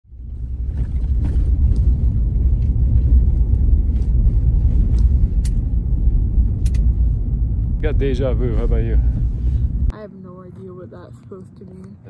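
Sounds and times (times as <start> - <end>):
vehicle driving on gravel: 0.1 - 9.9.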